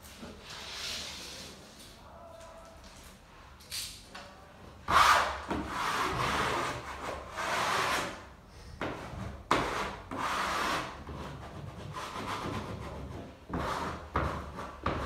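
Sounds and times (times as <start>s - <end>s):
wallpaper smoother scraping: 0.0s - 2.0s, 4.9s - 8.2s, 9.0s - 15.0s.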